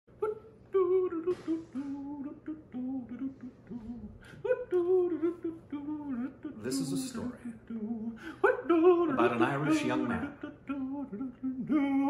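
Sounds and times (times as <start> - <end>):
person humming: 0.2 - 12.0.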